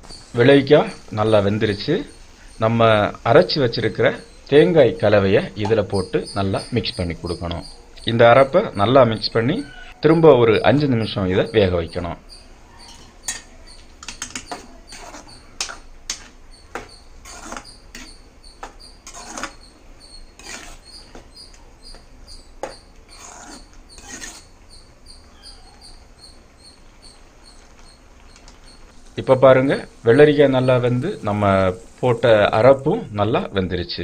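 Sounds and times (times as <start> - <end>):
metal spoon scraping a pot: 12.8 - 24.5.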